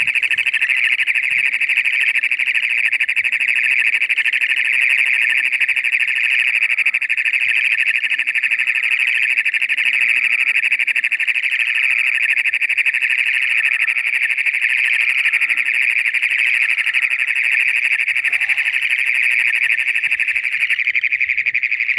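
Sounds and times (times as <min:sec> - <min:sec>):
toad buzzing trill: 0:00.0 - 0:06.4, 0:10.0 - 0:20.9.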